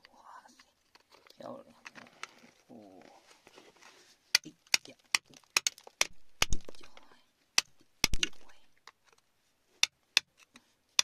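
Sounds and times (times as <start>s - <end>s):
metal tool striking rock: 4.7s - 7.0s, 7.6s - 8.5s.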